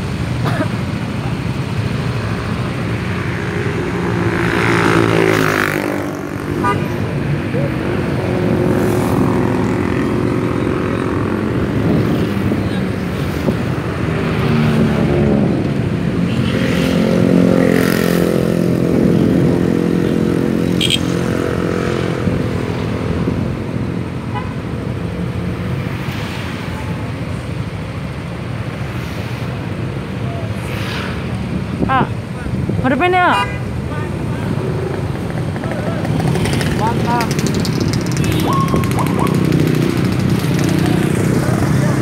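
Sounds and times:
scooter engines running: 0.0s - 24.0s, 34.1s - 42.0s.

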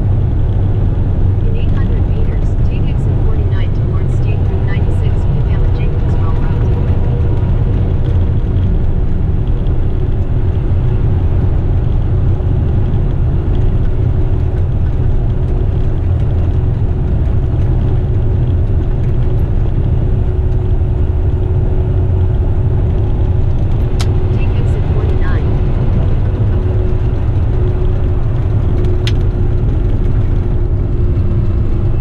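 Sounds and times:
faint hum: 0.0s - 12.2s, 19.0s - 32.0s
road rumble: 0.0s - 32.0s
truck engine drone: 0.0s - 32.0s.

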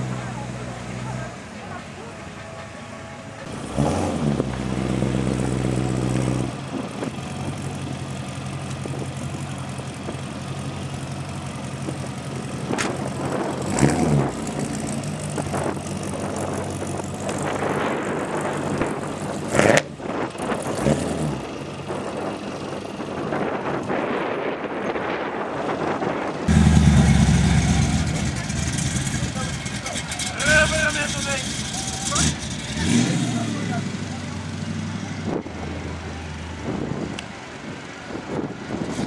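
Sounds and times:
car engine idling: 4.4s - 20.7s, 26.2s - 38.9s
engine throttle blips: 26.2s - 39.0s.

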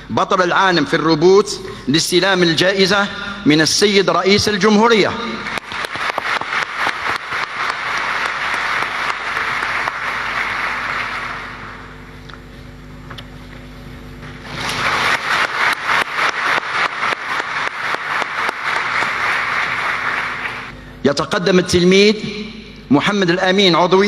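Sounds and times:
low steady hum: 0.0s - 24.0s
audience applauding: 5.5s - 12.0s, 14.3s - 20.7s.

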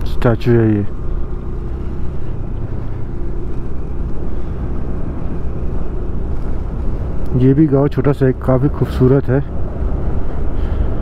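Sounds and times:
tyres running on road: 0.0s - 11.0s.

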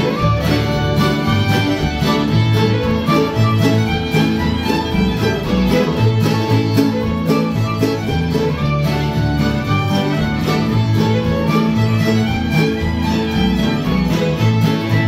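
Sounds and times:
acoustic guitars strumming: 0.0s - 15.0s
fiddles bowing melody: 0.0s - 15.0s
mandolins: 0.0s - 15.0s.

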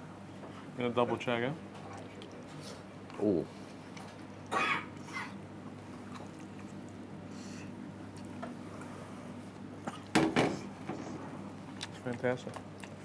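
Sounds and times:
steady low hum: 0.0s - 13.0s
person chewing: 3.9s - 8.9s, 9.5s - 10.1s, 11.7s - 13.0s.

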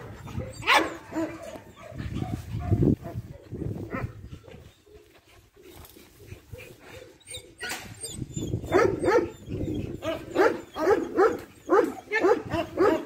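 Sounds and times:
dog barking: 0.6s - 4.1s, 8.7s - 9.3s, 10.0s - 13.0s.

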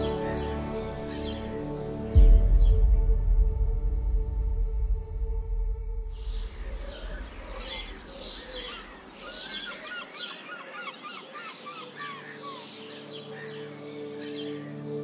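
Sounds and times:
birds chirping and singing: 0.0s - 3.2s, 6.0s - 15.0s
low musical drone: 0.0s - 8.9s, 12.0s - 15.0s
soft sustained music notes: 0.0s - 10.4s, 11.0s - 15.0s.

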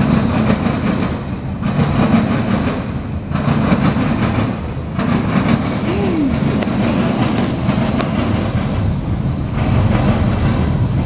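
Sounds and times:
louder rail clatter: 0.0s - 11.0s
train wheels clickety-clack: 0.0s - 11.0s.

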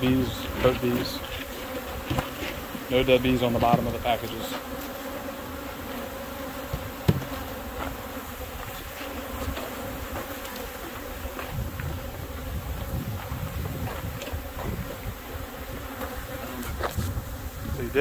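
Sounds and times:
bees buzzing: 0.0s - 18.0s.

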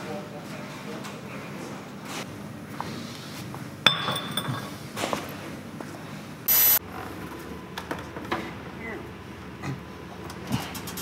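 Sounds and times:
glass bottle clinking on concrete: 3.9s - 4.8s.

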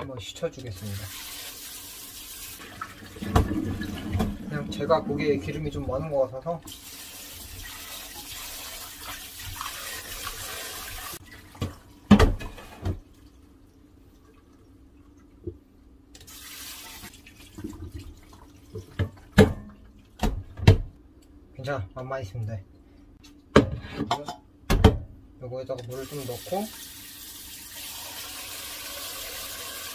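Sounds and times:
tap water running into pot: 0.7s - 4.6s, 6.6s - 11.8s, 16.2s - 19.3s, 25.9s - 29.9s.

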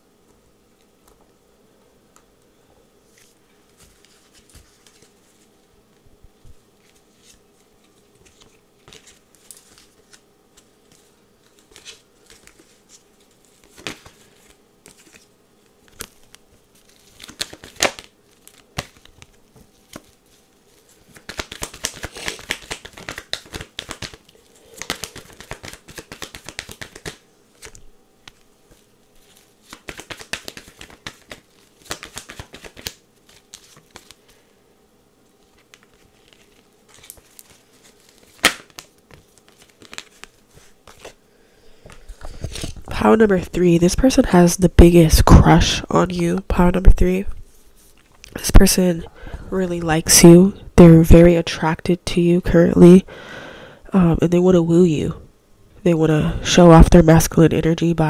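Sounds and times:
cards flicking and slapping: 6.8s - 34.4s, 35.4s - 41.2s
quick card shuffling: 6.8s - 34.4s, 35.4s - 41.2s.

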